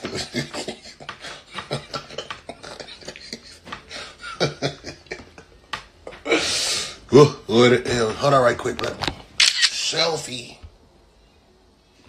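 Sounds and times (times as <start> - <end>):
man laughing: 0.0 - 6.4.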